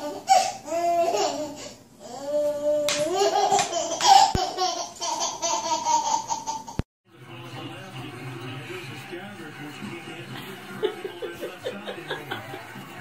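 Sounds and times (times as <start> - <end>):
baby laughing: 0.0 - 1.7, 2.8 - 6.8.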